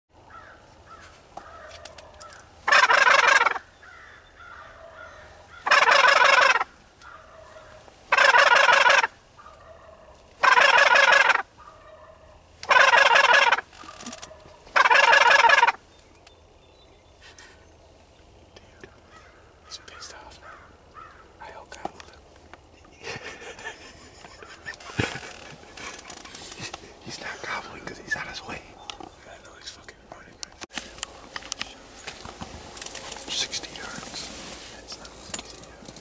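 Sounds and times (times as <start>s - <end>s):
turkey gobbles: 1.5s - 3.6s, 4.5s - 12.0s, 12.6s - 15.8s, 22.7s - 29.1s.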